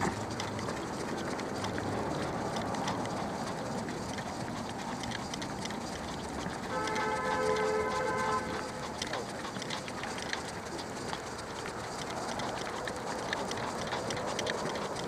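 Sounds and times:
faint ticks: 0:00.0 - 0:15.0
outdoor background rush: 0:00.0 - 0:15.0.

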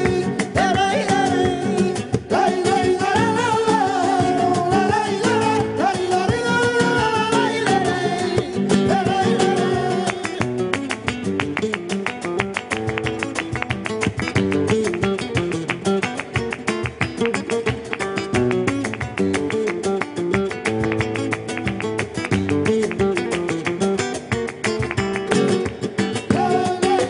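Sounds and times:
person singing: 0:00.0 - 0:10.4, 0:26.3 - 0:27.0
fast flamenco guitar: 0:00.0 - 0:27.0
hand-clapping: 0:00.0 - 0:27.0.

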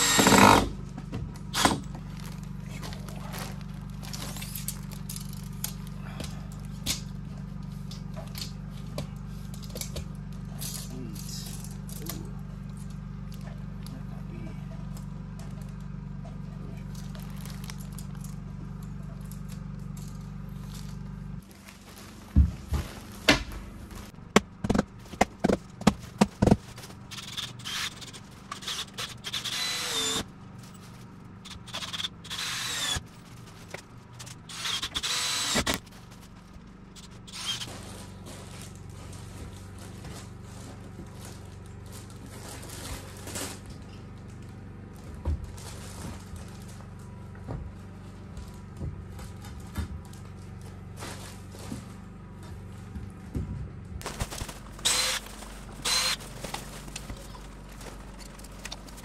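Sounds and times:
cordless drill running: 0:00.0 - 0:00.7, 0:26.4 - 0:30.3, 0:31.4 - 0:35.9, 0:36.9 - 0:37.7, 0:54.7 - 0:56.3.

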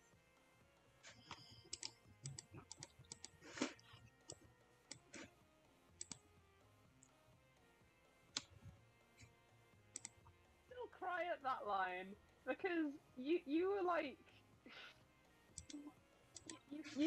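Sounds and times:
keyboard and mouse clicking: 0:01.2 - 0:05.2, 0:06.0 - 0:06.2, 0:09.9 - 0:10.2, 0:15.6 - 0:16.6.

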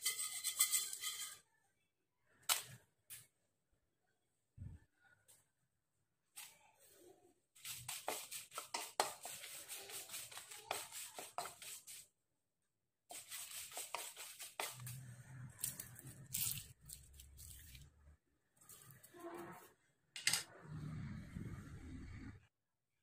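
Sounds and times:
wooden spatula stirring: 0:07.6 - 0:12.1, 0:13.1 - 0:19.8
chillies crackling in a pan: 0:13.1 - 0:19.2.

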